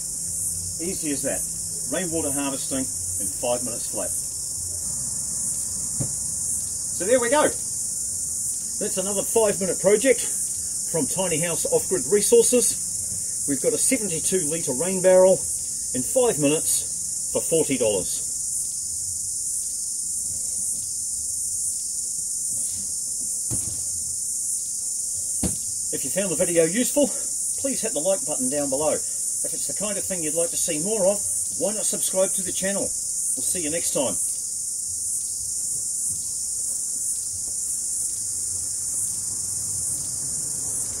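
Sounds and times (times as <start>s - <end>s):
insect chorus chirring: 0.0s - 41.0s
knocks on plastic bin: 6.0s - 6.2s, 23.5s - 24.0s, 25.4s - 25.7s.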